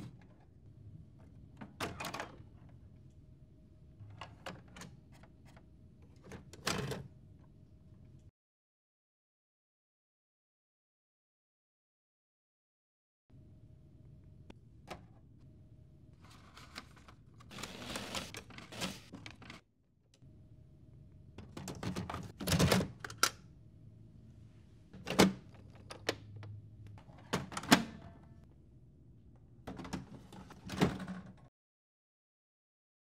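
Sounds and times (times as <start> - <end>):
paper rustling: 16.2 - 19.6.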